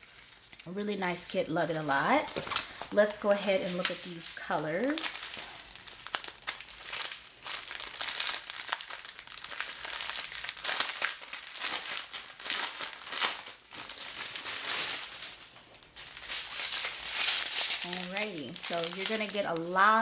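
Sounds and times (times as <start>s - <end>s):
plastic packaging crinkling: 0.0s - 20.0s.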